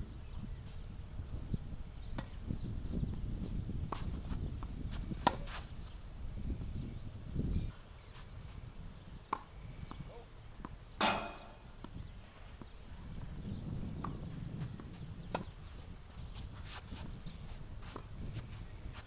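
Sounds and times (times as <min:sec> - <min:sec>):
tennis ball struck by rackets: 0:05.2 - 0:05.6, 0:09.2 - 0:10.2, 0:11.0 - 0:12.0, 0:14.0 - 0:15.6.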